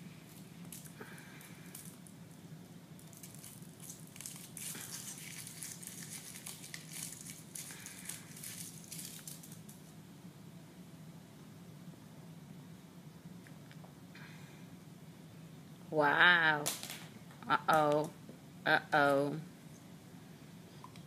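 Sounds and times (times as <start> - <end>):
foil wrapper crinkling: 0.3 - 2.2, 3.0 - 9.9.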